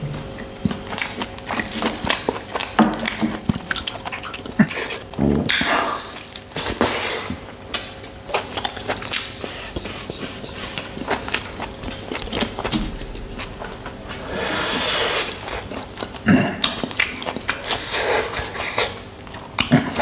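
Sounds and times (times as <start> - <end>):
hissing sucks on bone: 9.4 - 11.0.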